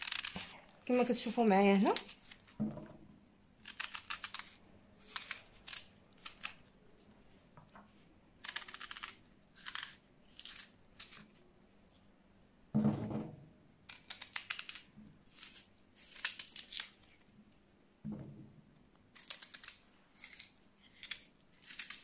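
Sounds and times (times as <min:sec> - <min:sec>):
soft knock: 0:12.8 - 0:13.4.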